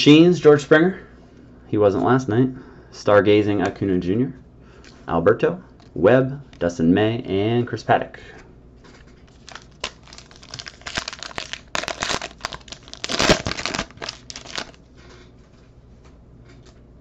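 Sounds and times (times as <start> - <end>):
foil wrapper tearing and crinkling: 9.2 - 14.8.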